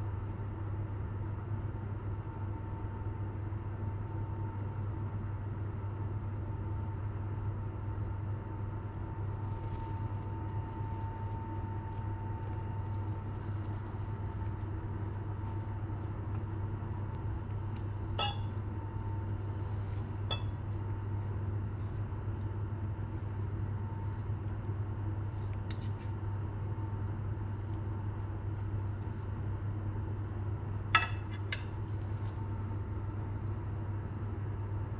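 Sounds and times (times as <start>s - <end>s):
cutlery scraping a ceramic plate: 18.2s - 18.5s.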